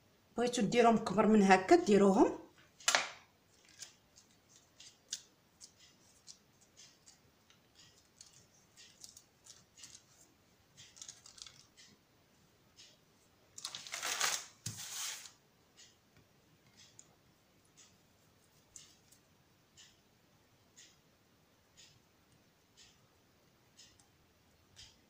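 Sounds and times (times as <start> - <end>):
parchment and dough crackling: 1.6 - 12.1, 12.8 - 15.4
parchment paper sliding rustle: 13.6 - 15.4.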